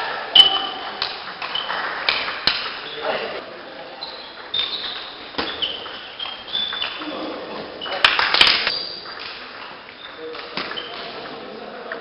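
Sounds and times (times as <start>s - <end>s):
shoes squeaking on floor: 1.4s - 2.0s, 3.9s - 9.2s, 9.9s - 11.3s.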